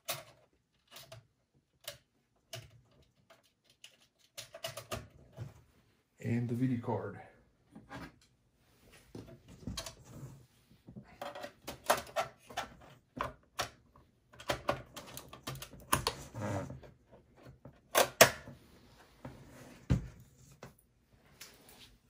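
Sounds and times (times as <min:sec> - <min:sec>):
plastic and metal clicks and rattles: 0:00.0 - 0:05.4, 0:11.1 - 0:16.2.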